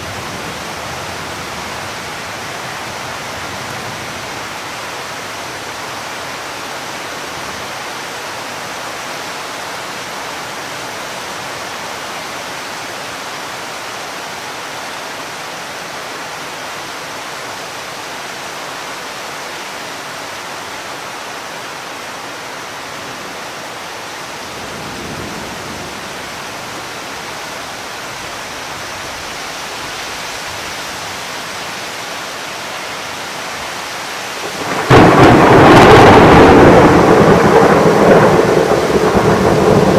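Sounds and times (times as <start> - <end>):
rain hissing: 19.0 - 39.9
distant thunder rumble: 34.4 - 39.9.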